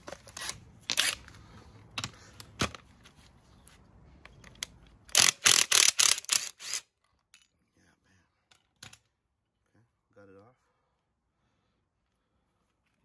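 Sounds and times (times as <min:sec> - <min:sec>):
impact wrench bursts: 0:05.1 - 0:06.9.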